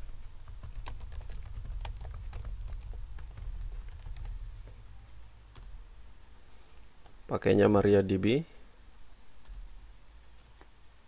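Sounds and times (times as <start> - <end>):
low steady hum: 0.0 - 11.0
computer keyboard typing: 0.4 - 5.8, 9.4 - 9.7.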